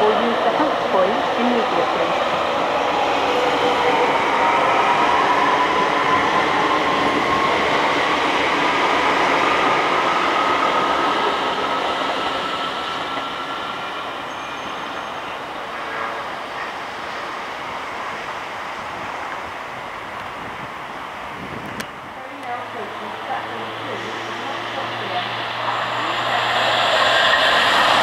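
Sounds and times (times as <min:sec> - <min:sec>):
wheels rumbling on rail: 0:00.0 - 0:28.0.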